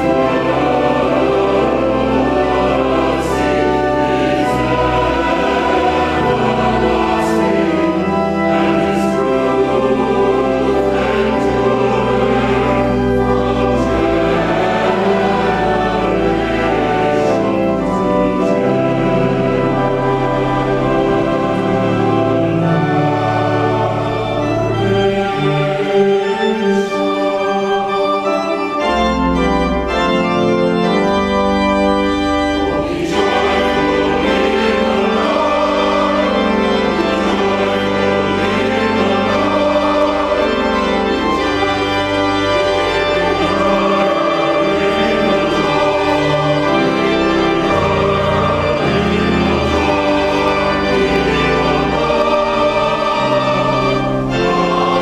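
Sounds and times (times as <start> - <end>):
church choir singing: 0.0 - 55.0
pipe organ: 0.0 - 55.0.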